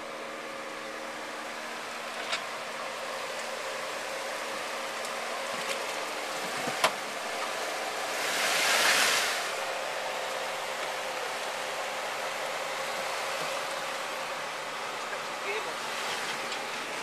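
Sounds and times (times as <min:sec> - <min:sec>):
engine running low: 0:00.0 - 0:17.0
hiss: 0:08.1 - 0:09.6.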